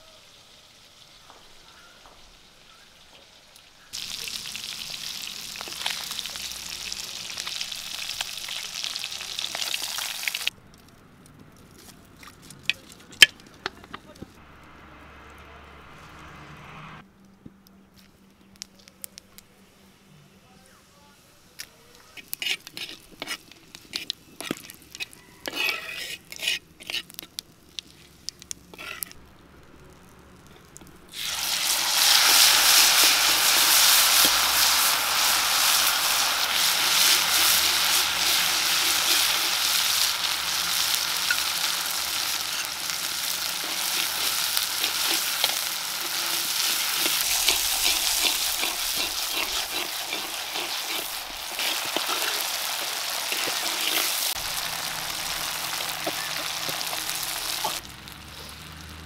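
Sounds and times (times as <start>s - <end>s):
loud steady sizzle: 0.0s - 11.9s, 18.0s - 59.0s
seeds crackling in hot oil: 0.0s - 15.3s, 17.2s - 19.9s, 21.2s - 59.0s
spatula stirring: 22.1s - 28.1s, 28.7s - 29.2s, 31.1s - 57.8s.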